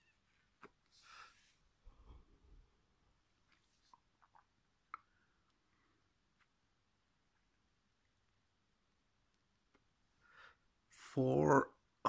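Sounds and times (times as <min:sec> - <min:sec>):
faint breathy hiss: 0:00.0 - 0:02.8, 0:10.1 - 0:11.0.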